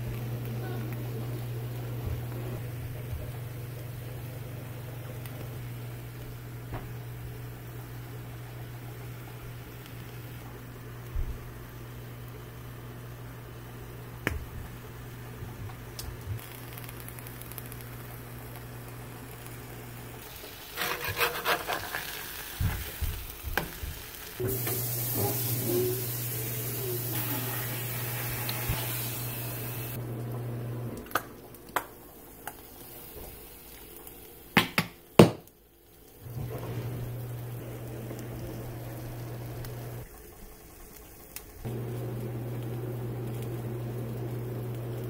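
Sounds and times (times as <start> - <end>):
meat sizzling on griddle: 16.4 - 30.0, 32.2 - 35.2, 38.1 - 42.3
metal spatula scraping griddle: 20.6 - 22.4.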